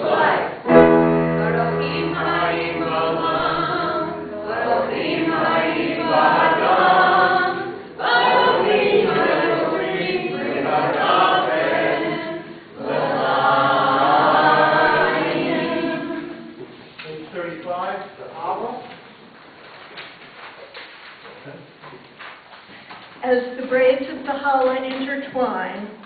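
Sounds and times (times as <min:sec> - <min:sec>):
group singing unaccompanied: 0:00.0 - 0:16.8.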